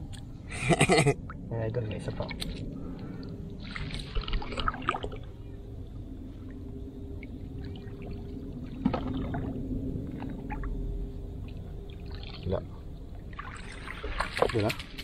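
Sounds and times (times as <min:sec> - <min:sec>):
water splashing from scoop net: 0:03.6 - 0:05.2, 0:07.8 - 0:10.6, 0:13.3 - 0:15.0.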